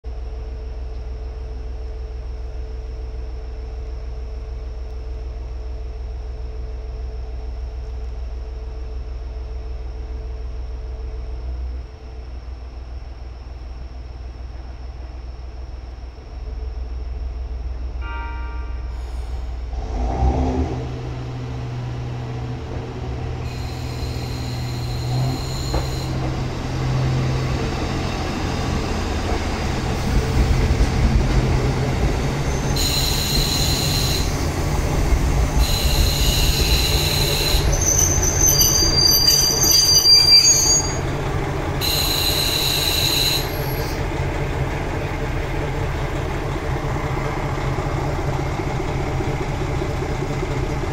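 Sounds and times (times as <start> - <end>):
diesel railcar engines throbbing: 0.0 - 50.9
high-pitched metal squeals: 23.4 - 26.2, 35.6 - 41.0.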